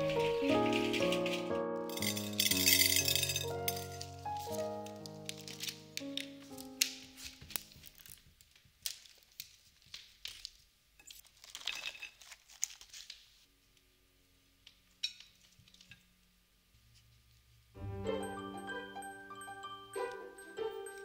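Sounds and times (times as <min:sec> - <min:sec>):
packaging crinkling and rustling: 0:03.8 - 0:13.5.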